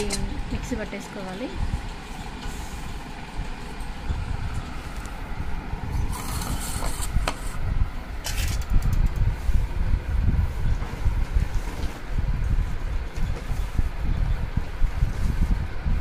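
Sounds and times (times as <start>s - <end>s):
low rumble on microphone: 0.0s - 16.0s.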